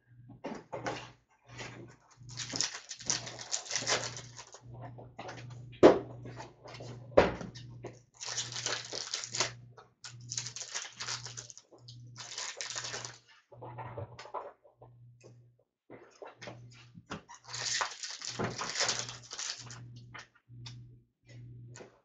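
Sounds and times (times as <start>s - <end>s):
card packs rustling and tearing: 2.3s - 4.6s, 8.2s - 13.2s, 17.4s - 19.8s.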